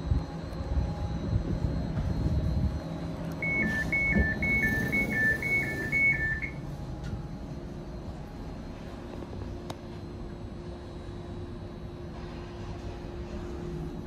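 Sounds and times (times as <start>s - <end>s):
low train rumble: 0.0s - 14.0s
two-tone door beep: 3.4s - 6.6s.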